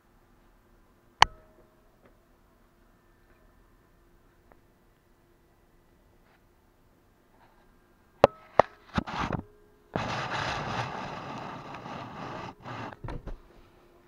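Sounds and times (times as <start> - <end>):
camera scraping on wooden shelf: 8.9 - 9.4, 10.0 - 13.0.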